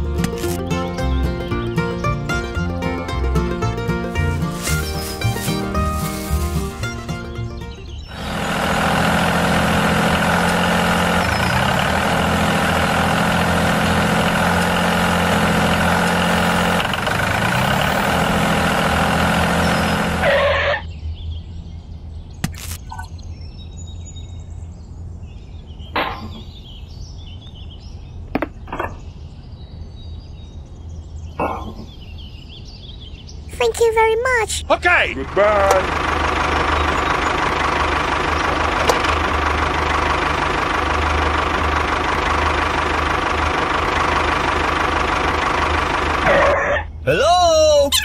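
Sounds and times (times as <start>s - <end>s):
small motor running: 8.1s - 20.2s.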